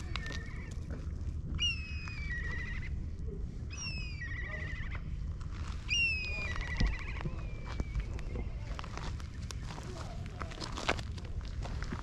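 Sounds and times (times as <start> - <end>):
steady low rumble: 0.0 - 12.0
bird whistling call with trill: 1.6 - 3.0, 3.7 - 5.0, 5.9 - 8.6.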